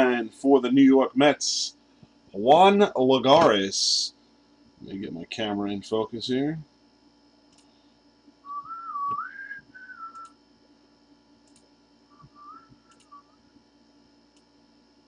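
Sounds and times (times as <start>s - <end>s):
person whistling a tune: 8.5s - 10.2s, 12.2s - 13.4s.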